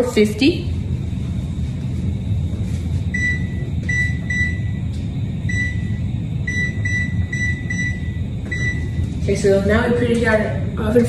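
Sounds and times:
steady low rumble: 0.0 - 11.0
oven keypad beeps: 3.1 - 4.8, 5.5 - 9.0.

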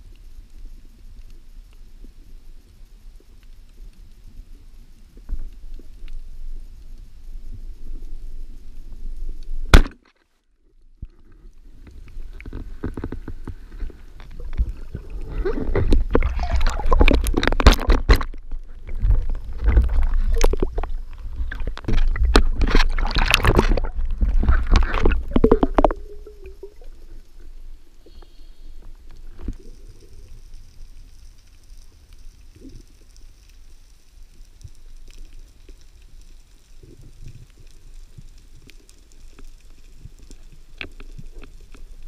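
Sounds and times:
faint underwater background: 0.0 - 42.0
water churning and sloshing: 12.3 - 27.2.

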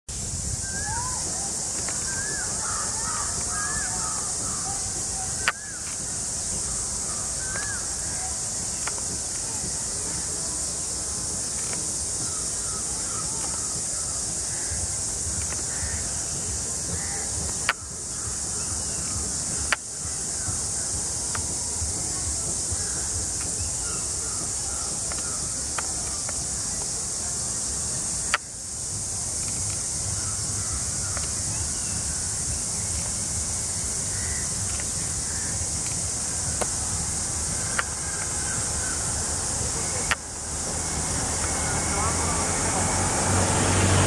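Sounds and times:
insects droning: 0.1 - 44.0
sharp clicks: 34.5 - 39.1, 39.8 - 40.4.

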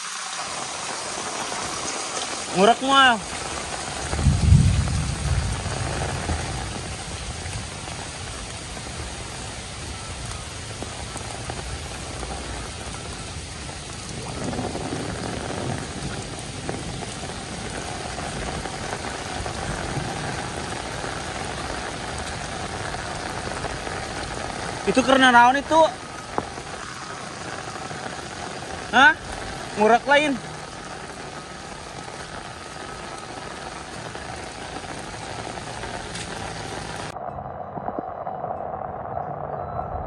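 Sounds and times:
heavy rain on water: 0.0 - 37.2
low rumble: 36.7 - 40.0.

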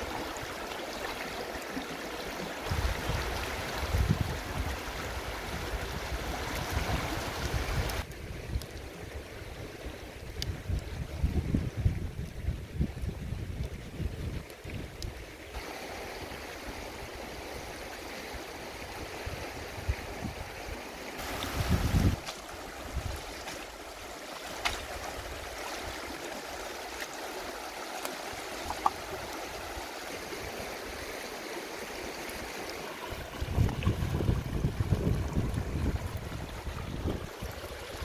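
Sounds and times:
river rushing over stones: 0.0 - 8.1, 15.4 - 38.0
wind gust on microphone: 2.7 - 9.7, 10.3 - 15.0, 18.8 - 23.4, 33.1 - 38.0.

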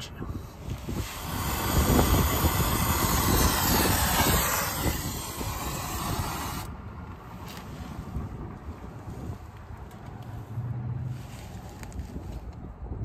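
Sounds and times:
torch flame hissing: 0.3 - 9.5.

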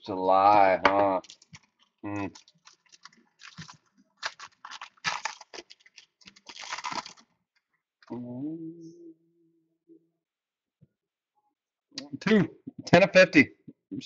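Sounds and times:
foil wrapper crinkling and tearing: 1.2 - 7.3
man humming: 8.1 - 9.3.

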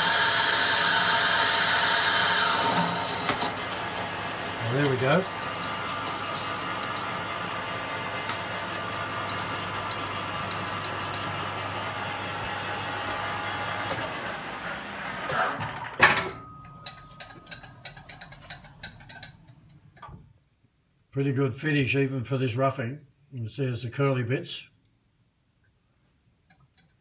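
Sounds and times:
metal lathe cutting with whine: 0.0 - 15.7
light ticks and clinks: 16.6 - 20.1.

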